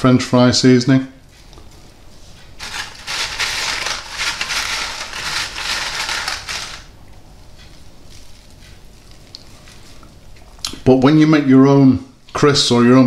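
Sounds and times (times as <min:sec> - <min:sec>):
crisps and paper rustling: 0:02.4 - 0:06.9.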